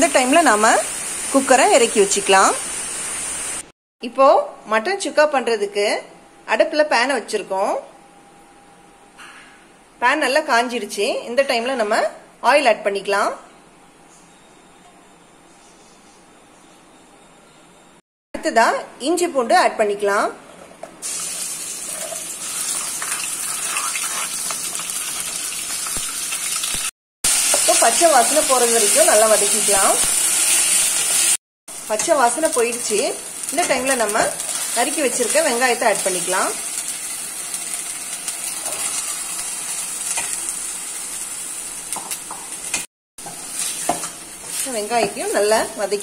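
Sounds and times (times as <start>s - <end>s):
paste sizzling in hot oil: 21.0s - 45.3s
metal spoon scraping pan: 21.9s - 25.3s.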